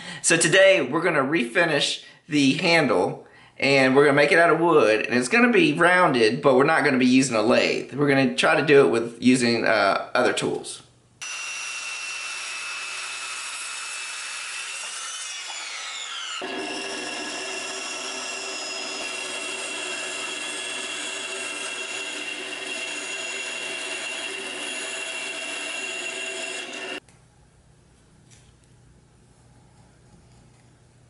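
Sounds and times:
bandsaw cutting wood: 11.2s - 27.0s
circular saw cutting wood: 11.2s - 27.0s.

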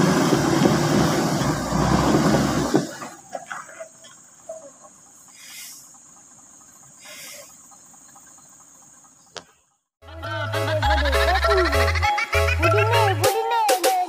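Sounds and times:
insects buzzing drone: 0.0s - 10.0s
music: 10.0s - 14.0s.

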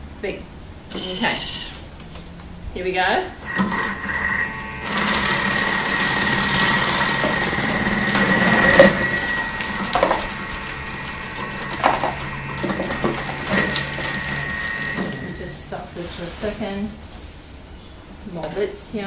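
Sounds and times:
food processor motor whine: 3.4s - 15.9s.

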